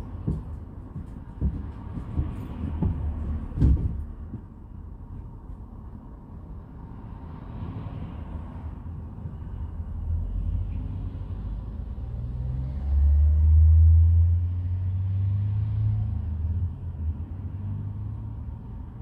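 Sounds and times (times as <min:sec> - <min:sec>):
vehicle engine rumbling: 0:00.0 - 0:06.8.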